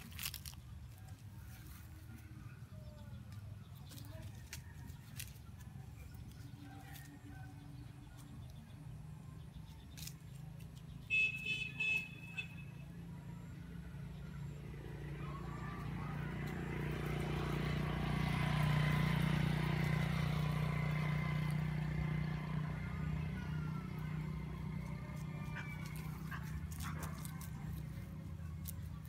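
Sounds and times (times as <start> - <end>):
motor vehicle passing: 0.0 - 29.0.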